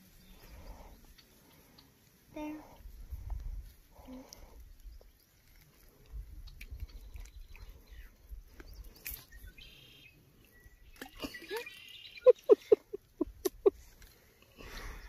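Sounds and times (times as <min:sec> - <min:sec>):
wind gusting on microphone: 0:02.8 - 0:03.8.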